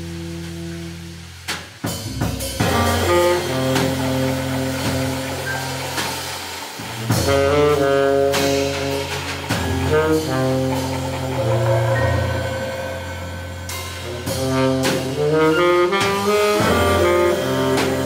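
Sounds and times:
drum and cymbal hits: 0.0s - 18.0s
jazz band playing: 0.0s - 18.0s
saxophone melody: 2.6s - 6.0s, 7.1s - 18.0s.

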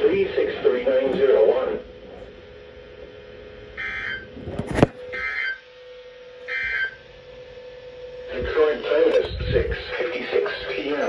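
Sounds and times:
steady low hum: 0.0s - 11.0s
digital data tone bursts: 3.8s - 4.3s, 5.1s - 5.6s, 6.5s - 7.0s.

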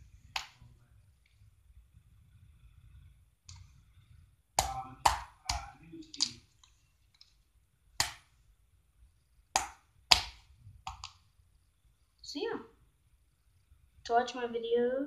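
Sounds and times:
slime popping on tile floor: 0.2s - 0.7s, 4.5s - 7.3s, 7.9s - 8.4s, 9.5s - 11.3s.

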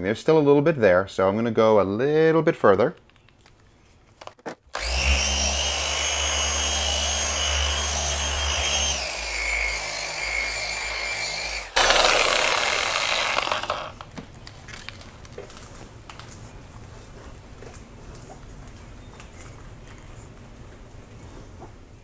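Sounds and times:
polisher motor whine: 4.8s - 14.0s.

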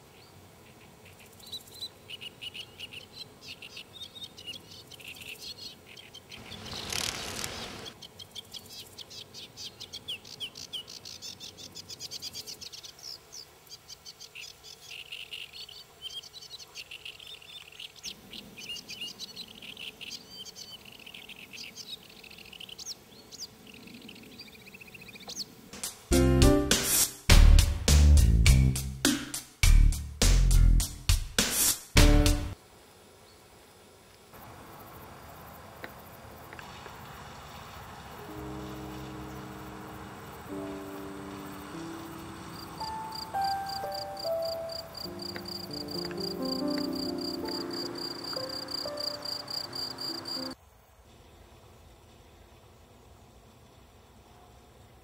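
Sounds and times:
small birds chirping: 0.0s - 25.7s, 38.3s - 50.6s.

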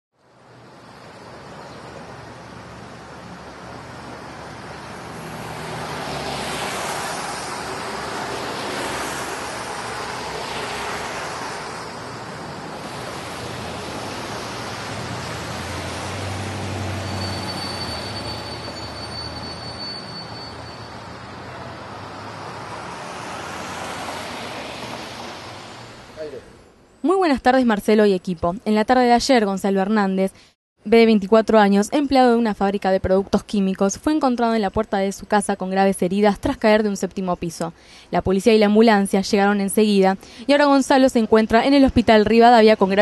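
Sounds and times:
vehicles passing: 0.2s - 27.0s.

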